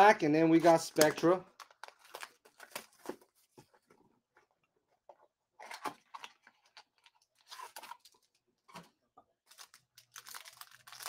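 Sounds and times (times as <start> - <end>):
packaging rustling and crinkling: 0.6 - 3.7, 9.5 - 11.0.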